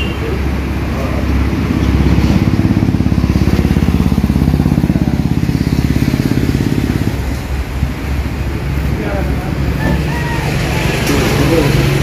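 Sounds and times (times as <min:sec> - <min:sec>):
engine running with even throb: 0:00.0 - 0:12.0.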